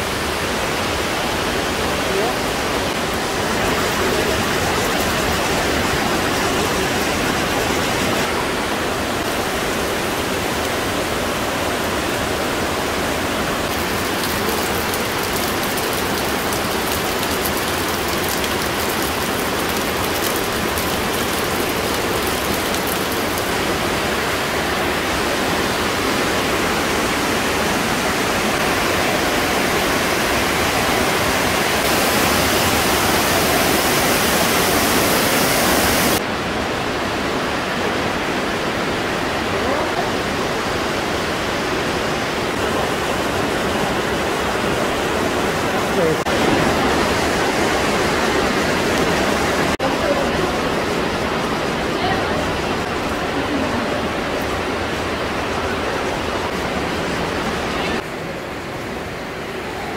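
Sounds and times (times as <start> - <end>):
stream rushing down rock: 0.0 - 59.9.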